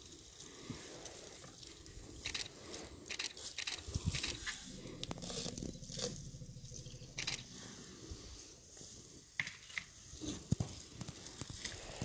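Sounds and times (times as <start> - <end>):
dry grass crunching: 0.4 - 8.6.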